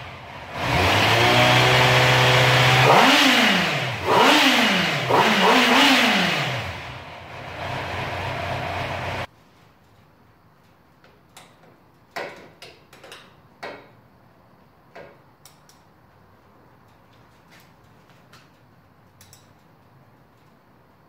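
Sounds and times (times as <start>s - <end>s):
socket wrench clicking: 15.4s - 15.9s, 19.2s - 19.6s.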